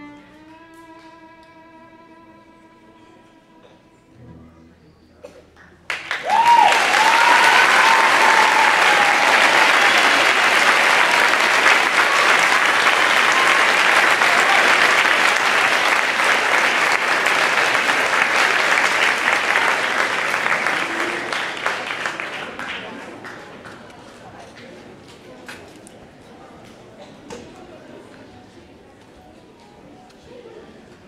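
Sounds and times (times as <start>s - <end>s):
audience cheering: 5.9s - 22.3s
audience applause: 5.9s - 24.2s.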